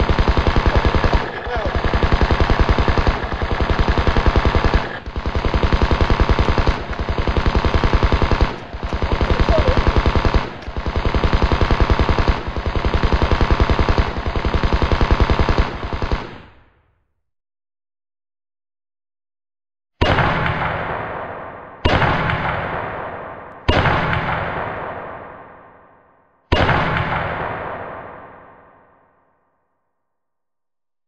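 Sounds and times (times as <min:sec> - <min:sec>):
rifle firing automatic bursts: 0:00.0 - 0:16.5.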